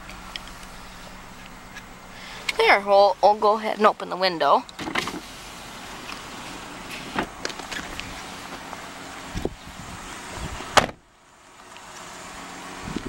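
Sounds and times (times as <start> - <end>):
car door slamming: 6.9 - 8.8, 10.6 - 11.1.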